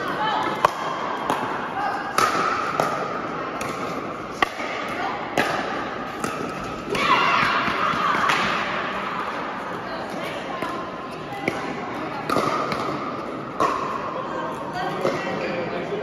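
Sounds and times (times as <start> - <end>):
people shouting: 6.9 - 8.6.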